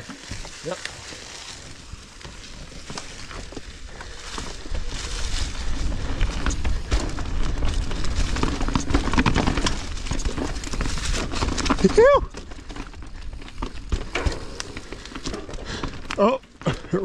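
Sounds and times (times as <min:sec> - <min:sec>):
bike rattling: 0:00.0 - 0:17.0
tyres crunching through dry leaves: 0:00.0 - 0:17.0
wind rumbling on microphone: 0:01.2 - 0:16.1.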